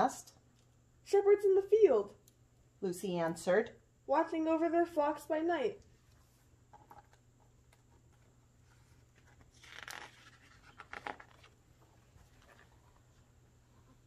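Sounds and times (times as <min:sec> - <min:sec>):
crisp paper rustles: 0:08.6 - 0:13.2.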